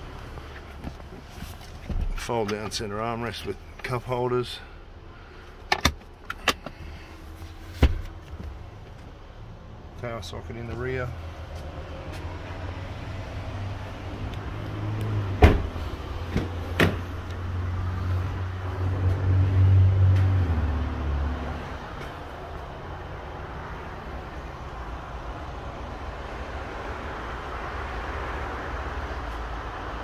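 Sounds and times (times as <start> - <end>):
car door shutting: 15.3 - 17.1.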